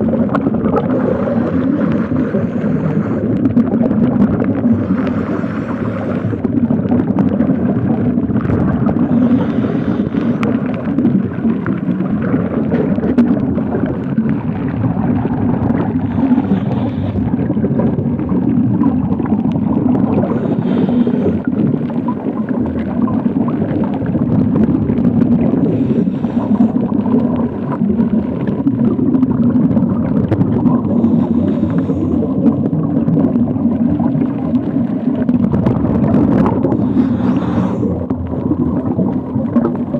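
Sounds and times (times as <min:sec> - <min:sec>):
faint underwater clicks and crackles: 0:00.0 - 0:39.9
underwater rush of water: 0:00.0 - 0:39.9.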